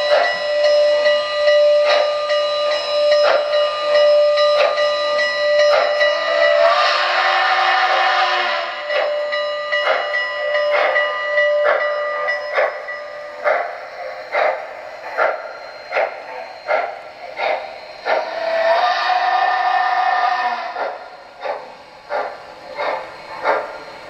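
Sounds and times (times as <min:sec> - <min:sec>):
model steam locomotive chuffing: 0:00.0 - 0:24.0
steam whistle blowing: 0:05.6 - 0:12.4, 0:14.3 - 0:21.6.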